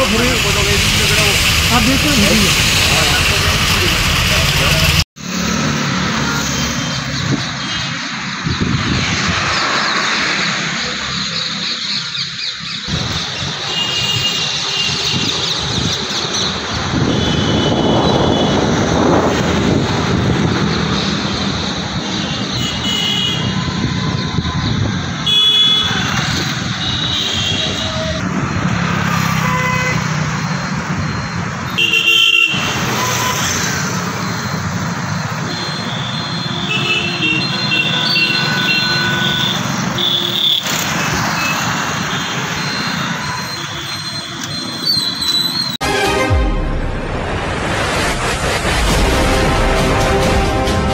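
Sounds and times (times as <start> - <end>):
motorcycles and cars passing: 0.0 - 31.8, 32.5 - 43.5
horn toots: 16.9 - 19.1, 35.4 - 44.6, 45.8 - 50.9.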